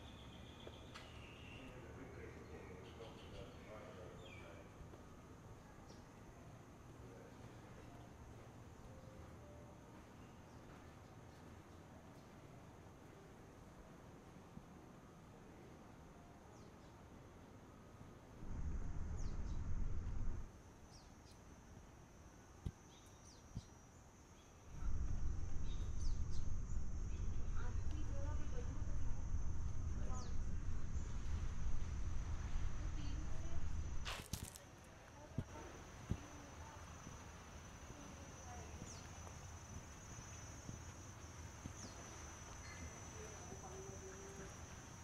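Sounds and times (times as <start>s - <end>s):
birds chirping: 0.0s - 4.8s, 36.0s - 45.0s
low rumble: 18.4s - 20.5s, 24.7s - 34.1s
insects trilling: 18.6s - 45.0s.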